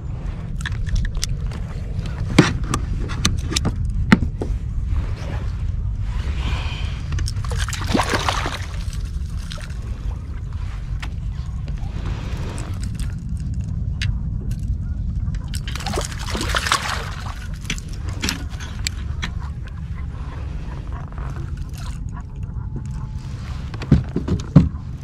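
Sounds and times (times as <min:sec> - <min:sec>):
steady low rumble: 0:00.0 - 0:25.0
fish thrashing and splashing: 0:07.2 - 0:10.3, 0:15.4 - 0:18.9.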